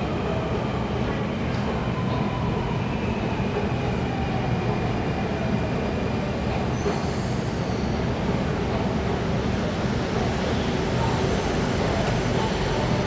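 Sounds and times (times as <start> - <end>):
high whine of train: 0.0 - 13.0
train rumbling: 0.0 - 13.0.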